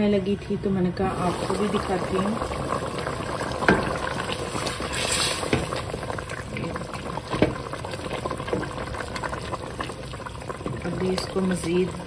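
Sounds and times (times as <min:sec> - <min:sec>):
curry bubbling in a pot: 0:00.0 - 0:12.0.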